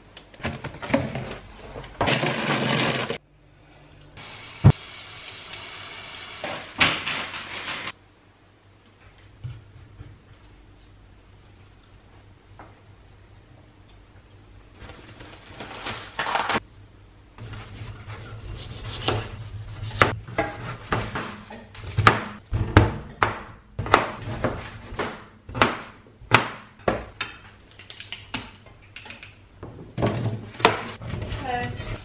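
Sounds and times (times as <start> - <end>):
knife chopping on plastic board: 22.0 - 27.1.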